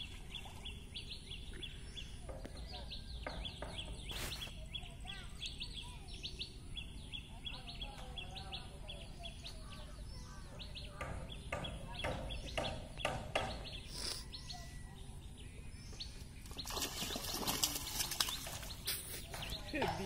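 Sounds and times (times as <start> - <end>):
small birds chirping: 0.0 - 20.0
fish splashing at water surface: 16.4 - 19.2.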